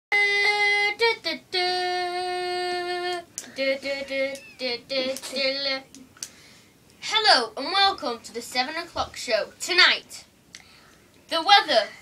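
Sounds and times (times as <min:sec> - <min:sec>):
child singing: 0:00.1 - 0:06.0.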